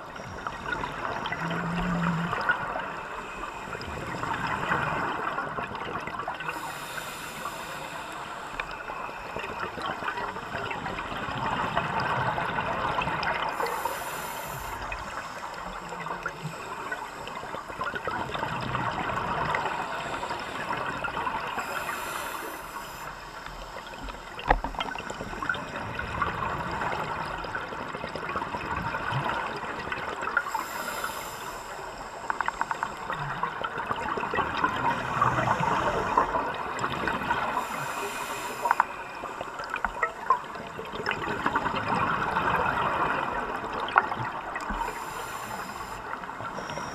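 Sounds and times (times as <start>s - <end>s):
underwater rush: 0.0s - 46.9s
diver exhaling bubbles: 0.4s - 5.3s.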